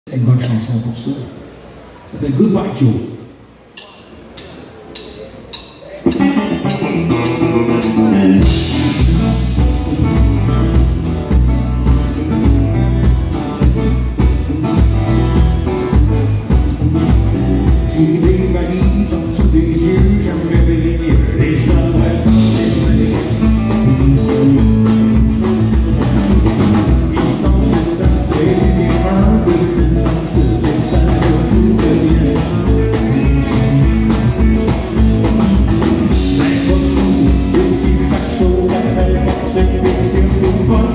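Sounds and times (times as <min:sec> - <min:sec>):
country band playing: 0:03.8 - 0:40.9
man singing: 0:06.1 - 0:09.9, 0:17.7 - 0:25.4, 0:26.5 - 0:34.5, 0:35.8 - 0:40.9.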